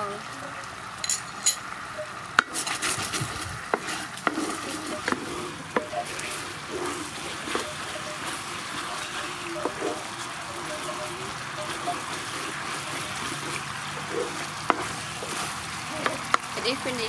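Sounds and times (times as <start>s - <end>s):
light clinks: 1.0s - 1.6s
sauce bubbling and sizzling in a pan: 1.6s - 17.0s
wooden spatula knocking on a pan: 14.0s - 15.4s.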